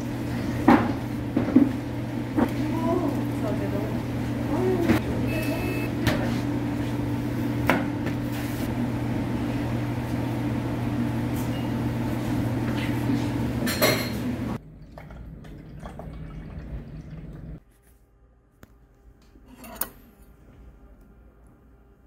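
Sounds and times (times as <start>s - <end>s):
low mechanical hum: 0.0s - 22.0s
dishes and cutlery clinking: 13.6s - 14.3s.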